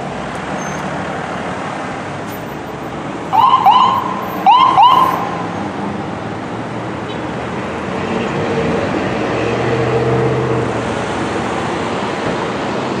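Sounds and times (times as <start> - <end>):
fire truck diesel engine: 0.0 - 7.0
street traffic noise: 0.0 - 13.0.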